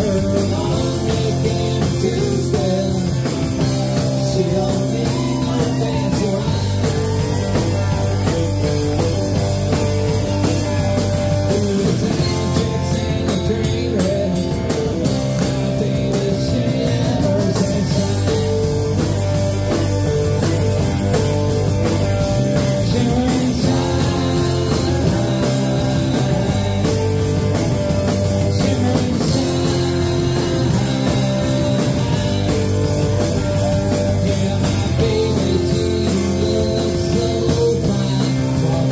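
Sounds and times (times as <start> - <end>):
live rock band playing: 0.0 - 38.9.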